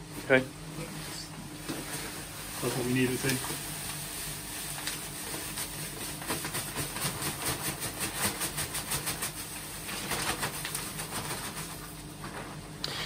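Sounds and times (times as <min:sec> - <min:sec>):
plastic bag crinkling: 0:01.9 - 0:07.3.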